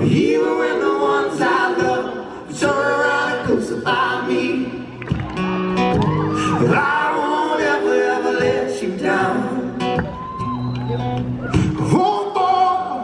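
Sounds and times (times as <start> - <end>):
men singing in harmony: 0.0 - 5.0, 6.4 - 9.9.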